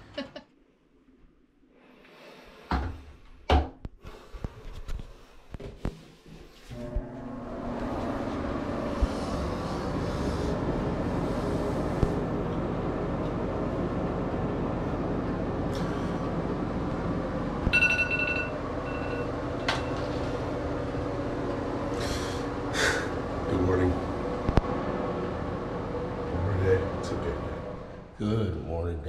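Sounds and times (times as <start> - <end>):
exhaust fan humming: 6.6 - 29.0.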